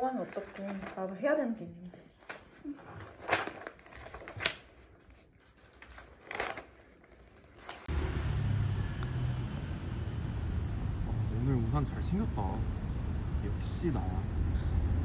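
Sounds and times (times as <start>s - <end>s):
paper pages rustling: 0.2s - 1.3s, 2.2s - 7.9s
steady low noise: 7.9s - 15.0s.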